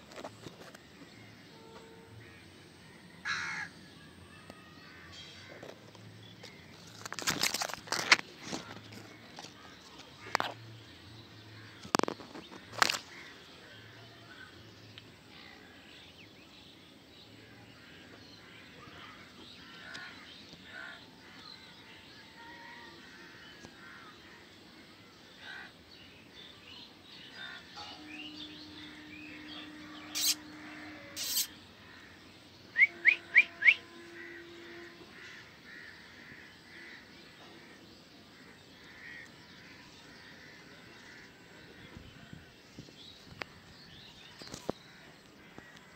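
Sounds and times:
crows cawing: 3.2 - 3.7, 18.7 - 21.4, 25.4 - 25.7, 27.3 - 32.2, 32.8 - 37.8, 38.4 - 41.8
birds calling: 25.4 - 45.9.

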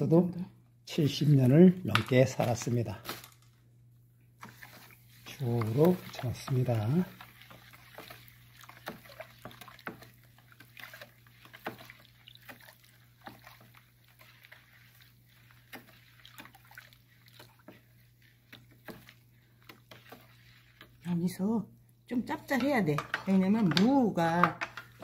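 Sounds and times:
spatula clicking: 4.4 - 21.0, 22.3 - 25.0
brine sloshing and splashing: 4.4 - 21.2.

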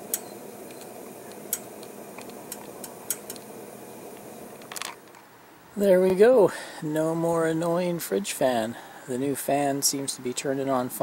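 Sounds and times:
gas burner flame rushing: 0.0 - 5.2.

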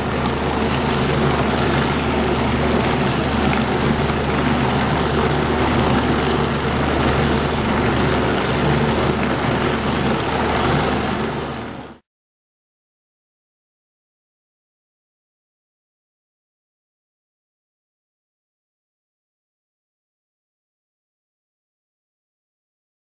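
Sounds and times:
bowl cutter machine whirring: 0.0 - 12.0.

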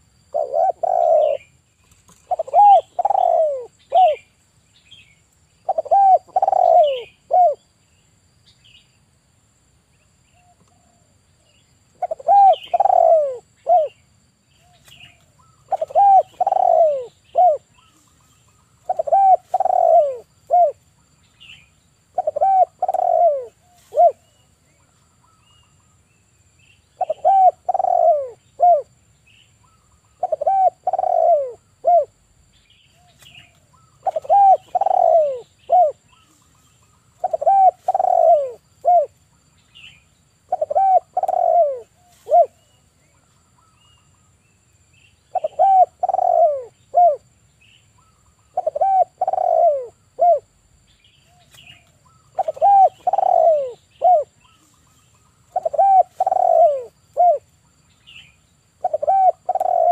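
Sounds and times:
dove cooing: 0.0 - 4.3, 5.6 - 7.7, 12.0 - 14.0, 14.6 - 18.1, 18.8 - 20.8, 22.1 - 24.4, 27.0 - 28.9, 29.7 - 32.2, 33.0 - 39.2, 40.4 - 42.8, 45.3 - 47.2, 48.0 - 50.6, 51.3 - 57.5, 58.8 - 59.9.

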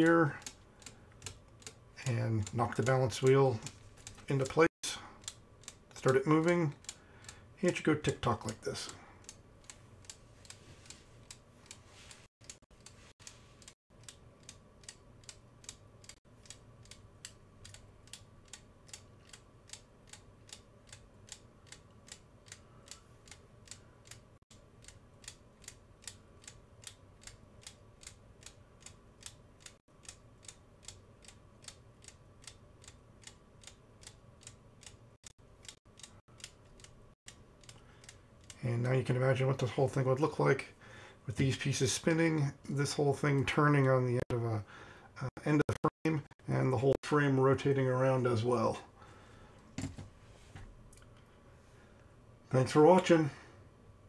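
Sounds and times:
small plastic clicks ticking: 0.0 - 4.6, 5.2 - 38.6.

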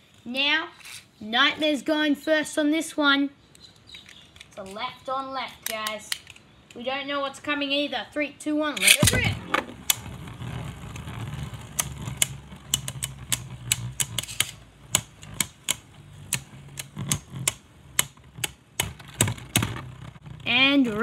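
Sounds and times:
spinning tops whirring: 8.8 - 21.0
spinning tops clacking together: 11.8 - 19.7.

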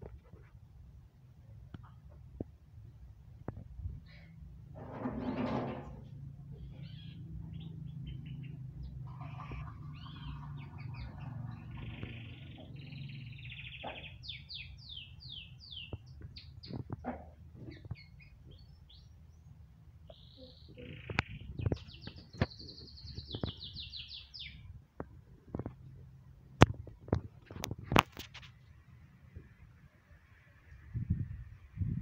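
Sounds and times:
canary singing trills: 6.6 - 17.0, 17.6 - 24.7.

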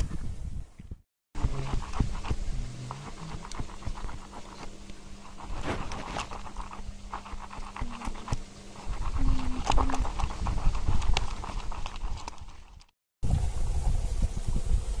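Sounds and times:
wet squelching of mashed watermelon: 5.3 - 12.9.

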